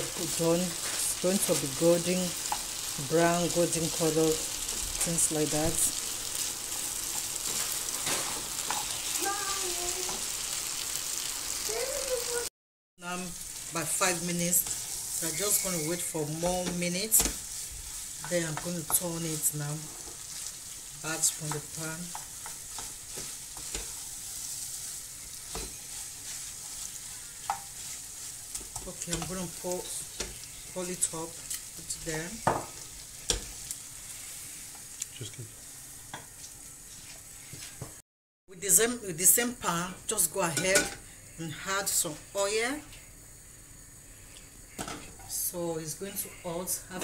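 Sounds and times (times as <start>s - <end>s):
beef sizzling in a frying pan: 0.0s - 38.0s, 38.7s - 47.0s
spatula scraping a pan: 7.1s - 9.3s, 14.1s - 34.9s.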